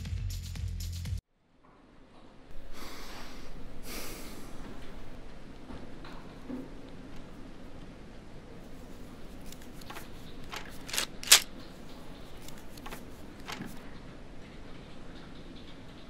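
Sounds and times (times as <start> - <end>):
papers rustling: 8.7 - 13.8.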